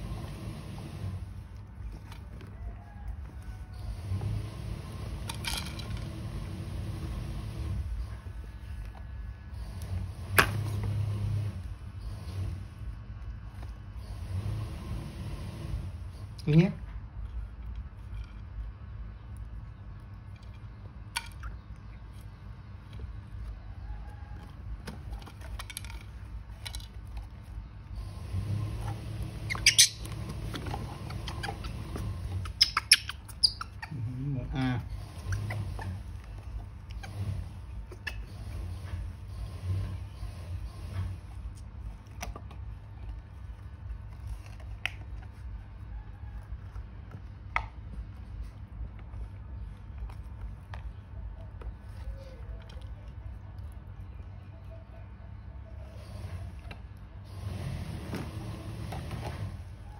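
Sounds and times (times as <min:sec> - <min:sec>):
steady low hum: 0:00.0 - 0:59.9
plastic toys clicking and rattling: 0:05.2 - 0:06.2, 0:24.6 - 0:27.6.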